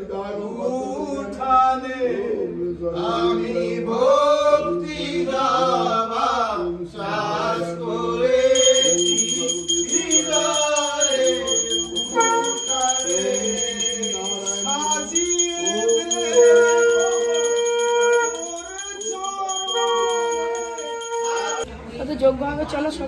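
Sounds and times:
men singing a hymn in unison: 0.0 - 16.7
hand bell ringing: 8.4 - 21.7.

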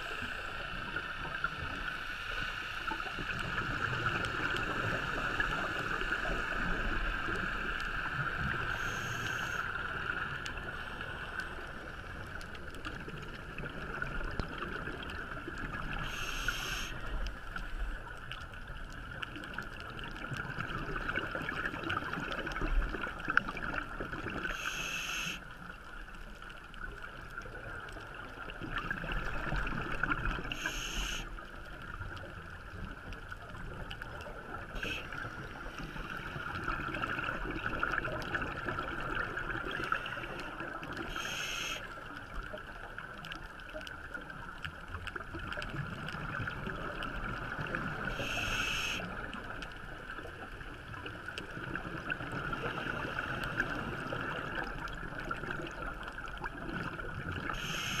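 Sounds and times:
underwater regulator breathing hiss: 8.7 - 9.8, 16.0 - 17.0, 24.5 - 25.4, 30.5 - 31.3, 41.1 - 41.9, 48.1 - 49.1, 57.5 - 58.0
exhaled bubbles: 33.7 - 42.5.

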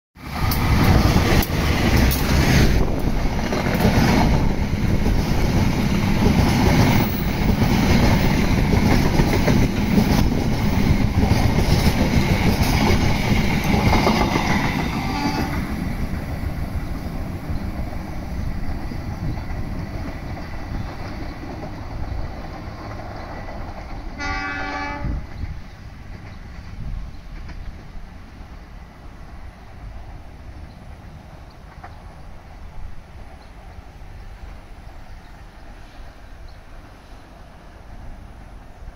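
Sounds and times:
train passing on rails: 0.2 - 38.9
train horn: 14.2 - 15.7, 24.1 - 25.3.

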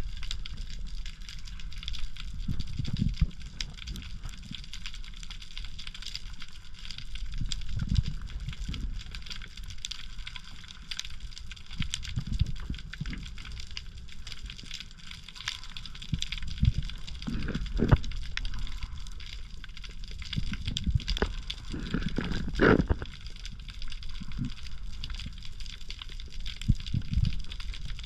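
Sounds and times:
low water rumble: 0.0 - 28.0
underwater crackle of clicks: 0.0 - 28.0.

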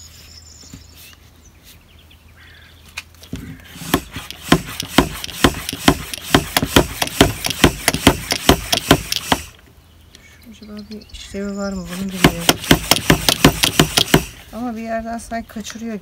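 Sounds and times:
pressure sprayer hand pump strokes: 3.7 - 9.6, 11.8 - 14.5.

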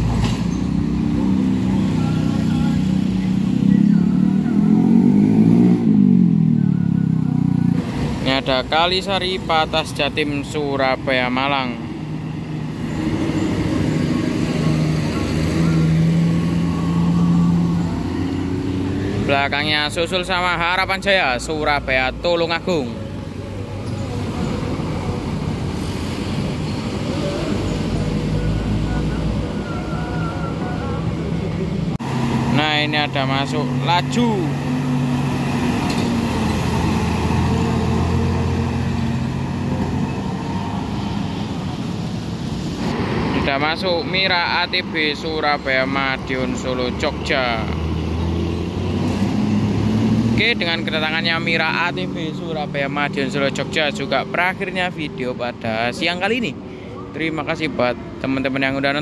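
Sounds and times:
coach diesel engine passing: 0.0 - 56.2
road noise: 0.0 - 59.0.

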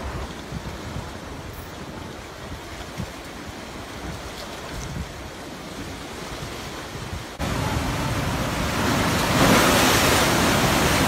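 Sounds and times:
wind buffeting microphone: 0.0 - 11.0
storm waves crashing: 5.9 - 11.0.

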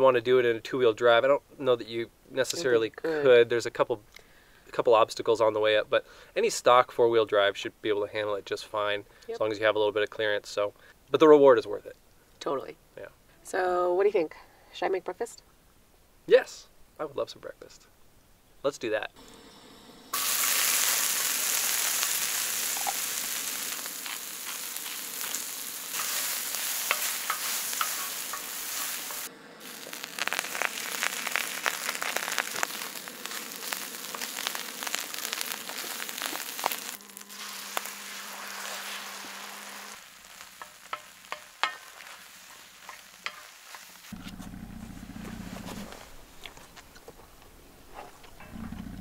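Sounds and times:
meat and peppers sizzling: 2.3 - 7.7, 19.2 - 44.2
utensil scraping griddle: 22.7 - 44.3.

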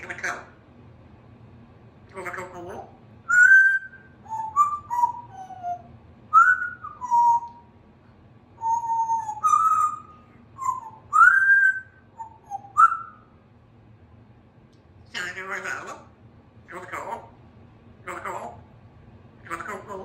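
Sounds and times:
parrot whistling: 3.3 - 7.7, 8.6 - 13.3.

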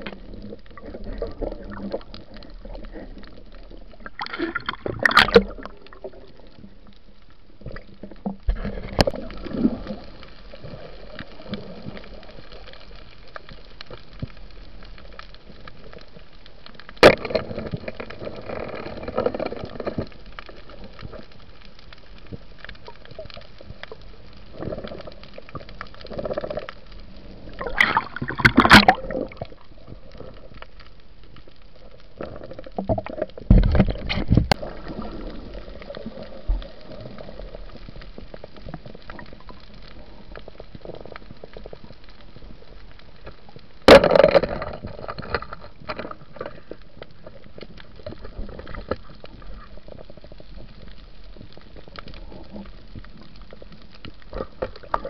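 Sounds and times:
underwater hiss and gurgling: 0.0 - 55.0
bubbling bursts: 3.9 - 6.3, 27.5 - 29.6.

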